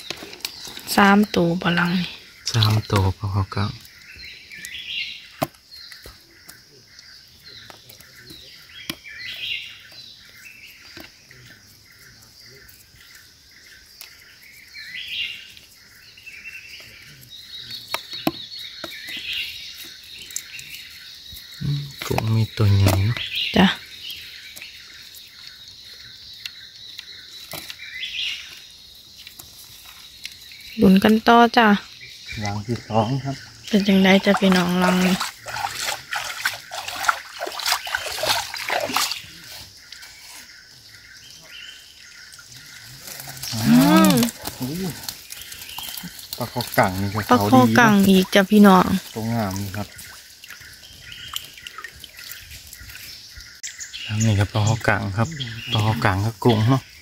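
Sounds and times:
chirping calls: 12.0 - 57.0
high insect drone: 18.5 - 51.6
water splashing and sloshing: 31.9 - 40.5, 42.2 - 53.6.

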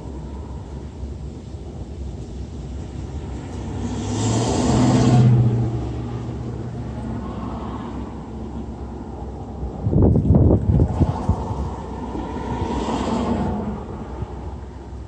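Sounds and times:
low rumble: 0.0 - 15.0
car passing by: 2.8 - 14.9.

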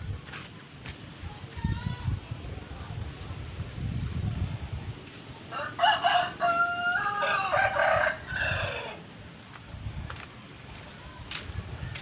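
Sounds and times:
rooster crowing: 5.5 - 9.0.

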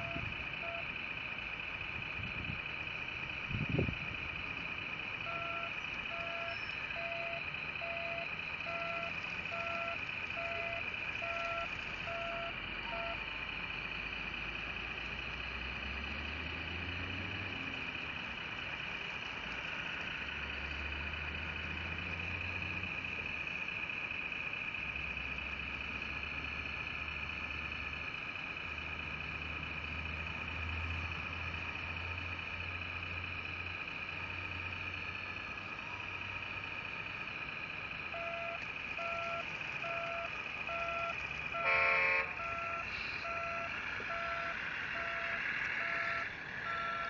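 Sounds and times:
reversing beeper: 0.0 - 0.9, 5.2 - 13.3, 38.1 - 47.0
steady high-pitched whine: 0.0 - 47.0.

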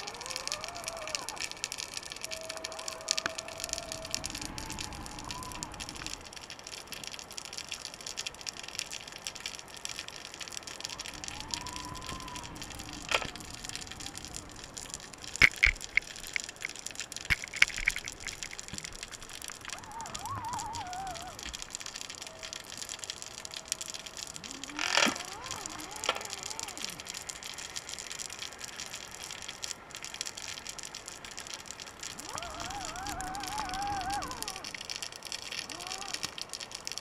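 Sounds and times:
underwater hiss: 11.0 - 27.6
sharp clicks and knocks: 15.4 - 19.8.

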